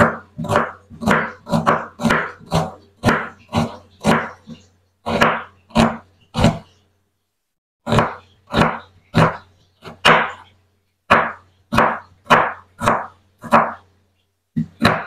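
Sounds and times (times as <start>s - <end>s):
knife slicing onion on cutting board: 0.0s - 6.8s, 7.8s - 13.9s, 14.5s - 15.0s.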